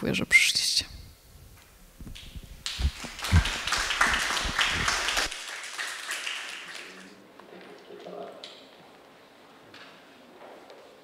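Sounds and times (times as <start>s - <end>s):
audience applauding: 2.6s - 7.2s.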